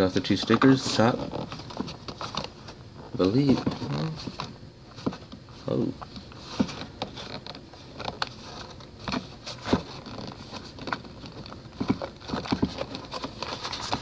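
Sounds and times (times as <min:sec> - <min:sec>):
plastic packaging clicking and creaking: 0:00.0 - 0:14.0.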